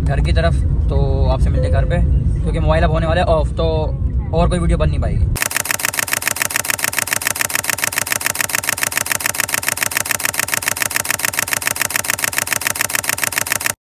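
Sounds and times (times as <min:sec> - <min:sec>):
rapid mechanical pulsing: 0:05.4 - 0:13.8.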